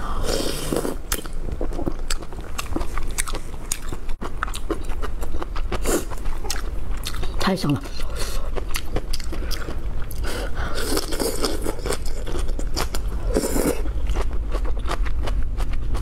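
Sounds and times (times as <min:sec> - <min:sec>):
slurping noodles: 0:00.1 - 0:01.0
wet chewing: 0:00.6 - 0:16.0.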